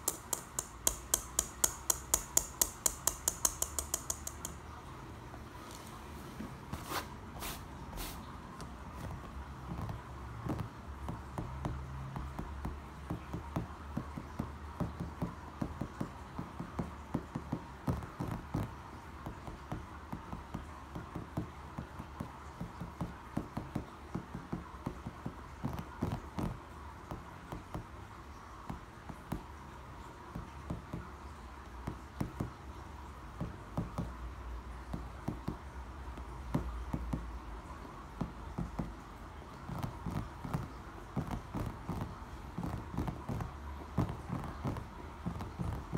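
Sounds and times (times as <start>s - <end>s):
fingertips tapping on brick: 0.0s - 4.8s, 8.5s - 28.0s.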